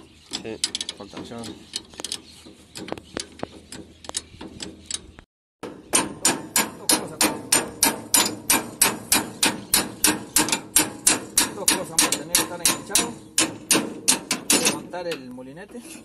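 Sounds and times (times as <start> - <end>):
hammer striking rapidly: 5.6 - 14.8.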